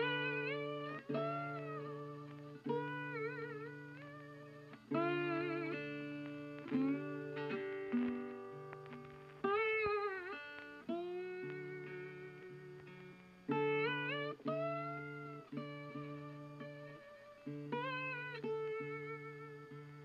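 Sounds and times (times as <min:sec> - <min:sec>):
guitar notes ringing out: 0:00.0 - 0:20.0.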